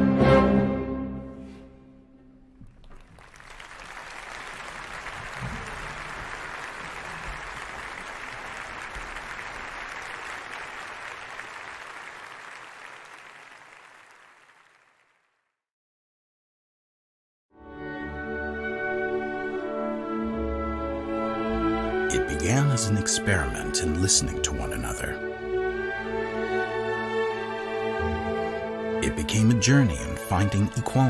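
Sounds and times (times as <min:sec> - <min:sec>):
audience applauding: 0:02.7 - 0:15.4.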